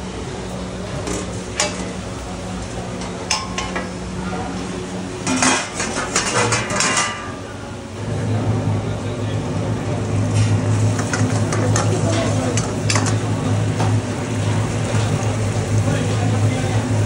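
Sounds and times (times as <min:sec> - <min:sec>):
steady low hum: 0:00.0 - 0:17.0
metal utensils clinking on pot: 0:03.0 - 0:03.9, 0:05.2 - 0:07.4.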